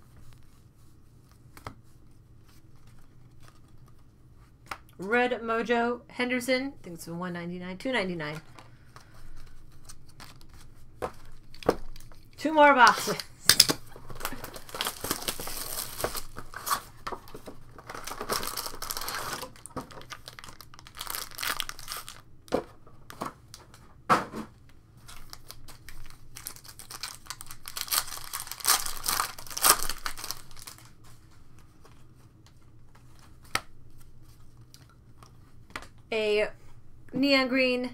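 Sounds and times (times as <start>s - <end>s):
foil wrappers crinkling and tearing: 11.3s - 22.3s, 25.0s - 31.0s.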